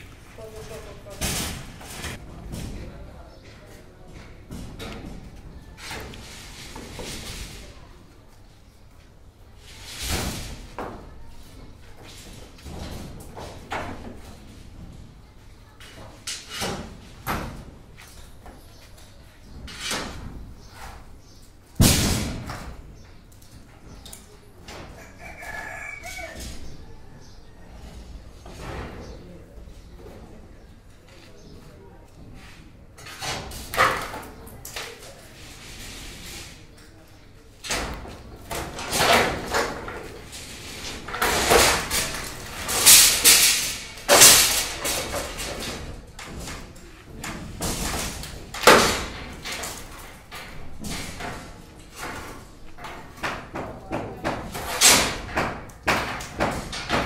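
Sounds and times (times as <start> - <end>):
wooden knocks and clatters: 37.7 - 57.0.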